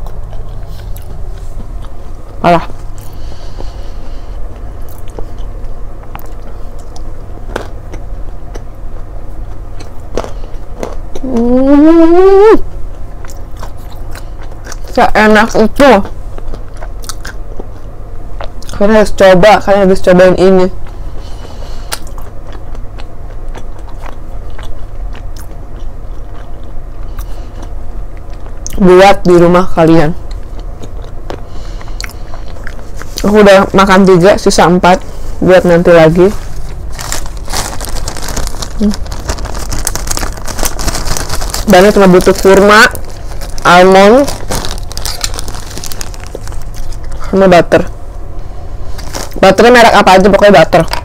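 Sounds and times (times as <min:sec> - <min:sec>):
person chewing: 0:00.0 - 0:11.8, 0:12.6 - 0:15.0, 0:16.0 - 0:18.8, 0:20.8 - 0:28.8, 0:30.2 - 0:34.0, 0:36.3 - 0:47.3.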